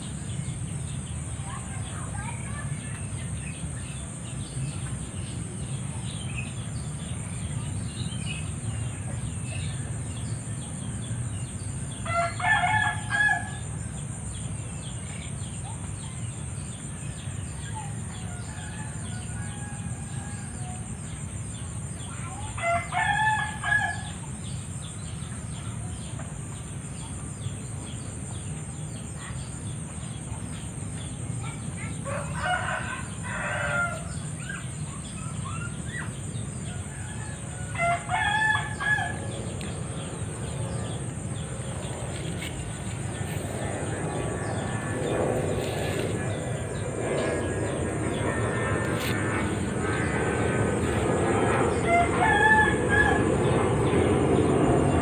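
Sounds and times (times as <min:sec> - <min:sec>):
rooster crowing: 0:12.0 - 0:13.6, 0:32.0 - 0:34.2, 0:36.7 - 0:39.3, 0:50.8 - 0:53.9
high-pitched insect drone: 0:31.4 - 0:55.0.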